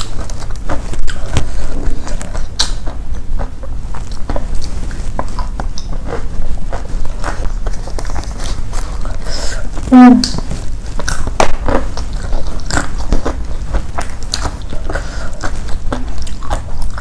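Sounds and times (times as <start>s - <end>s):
chewing food: 0.0s - 17.0s.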